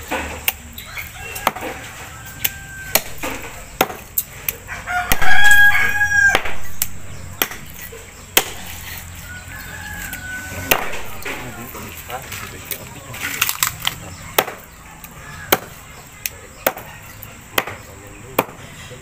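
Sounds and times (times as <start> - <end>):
rooster crowing: 0.8 - 3.7, 4.7 - 6.8, 9.1 - 11.8, 15.0 - 15.9.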